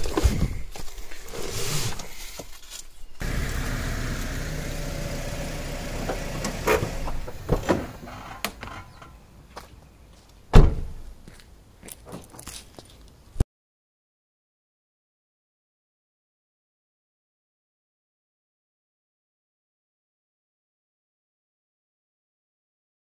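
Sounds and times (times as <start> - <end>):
car engine running: 3.2 - 8.4
car door shutting: 3.2 - 8.6.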